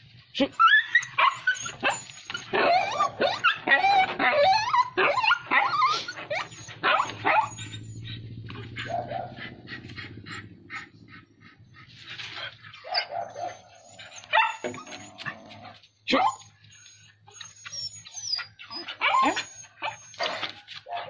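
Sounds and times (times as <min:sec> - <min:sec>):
animals growling and snarling: 0:02.5 - 0:12.9.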